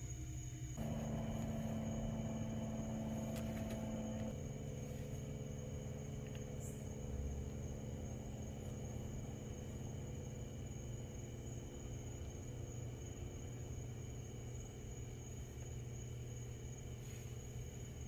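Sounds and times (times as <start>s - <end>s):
faint high whine: 0.0s - 18.0s
mechanical hum with low rumble: 0.0s - 18.0s.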